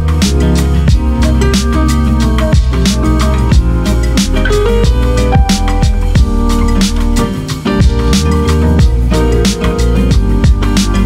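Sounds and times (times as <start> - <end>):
plucked guitar over drums: 0.0 - 11.0.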